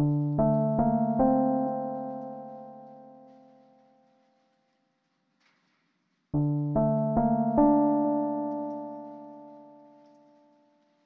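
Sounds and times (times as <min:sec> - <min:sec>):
piano-like keyboard chord: 0:00.0 - 0:04.0, 0:06.4 - 0:10.7.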